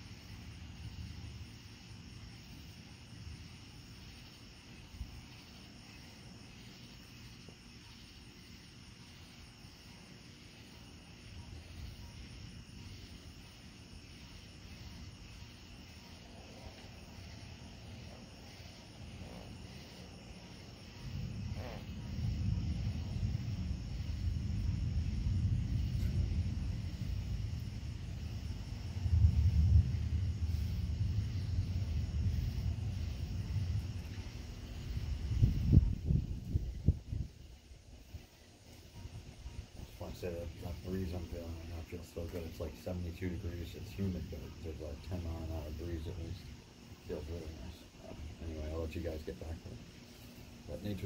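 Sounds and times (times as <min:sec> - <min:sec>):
crickets and insects chirping: 0:00.0 - 0:51.0
low rumble: 0:20.6 - 0:37.4.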